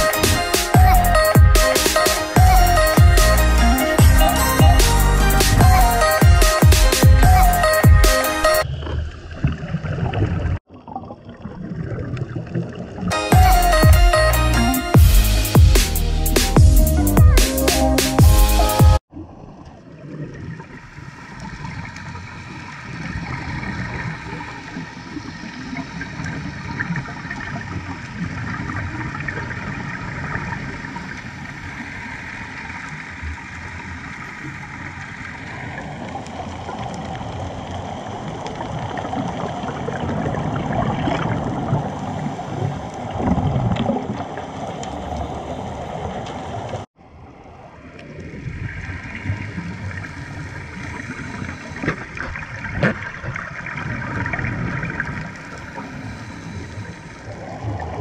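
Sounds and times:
bubbling gurgles: 0:08.6 - 0:13.1, 0:19.1 - 0:46.9, 0:47.7 - 0:58.0
muffled underwater rush: 0:19.1 - 0:58.0.

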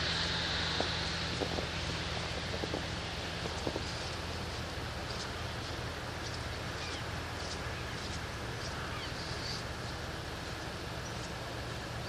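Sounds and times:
low rumble: 0:00.0 - 0:08.6.

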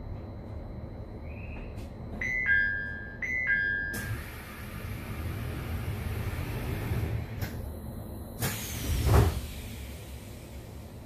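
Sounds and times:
low hum from stopped train: 0:00.0 - 0:11.0
train door clicks: 0:08.4 - 0:09.6.

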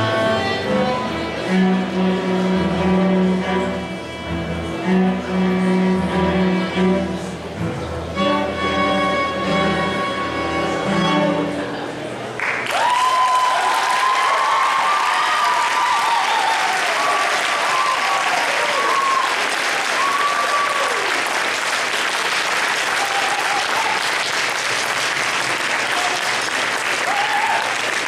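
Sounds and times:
audience applauding: 0:12.3 - 0:28.0
whooping cheers: 0:12.6 - 0:21.2, 0:22.8 - 0:24.2, 0:26.9 - 0:27.9.

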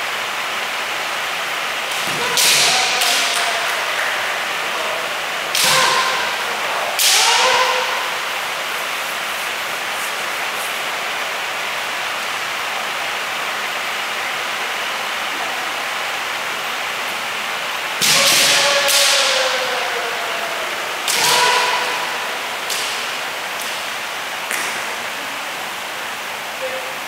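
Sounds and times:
background hiss: 0:00.0 - 0:27.0
person shouting: 0:02.0 - 0:08.4, 0:18.0 - 0:22.9
bamboo sword strike: 0:05.5 - 0:06.4, 0:18.0 - 0:19.4, 0:21.1 - 0:21.8.

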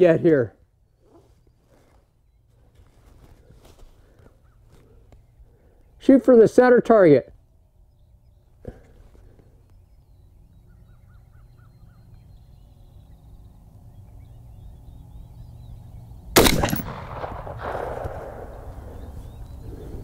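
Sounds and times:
rifle shot with echo: 0:16.4 - 0:19.1.

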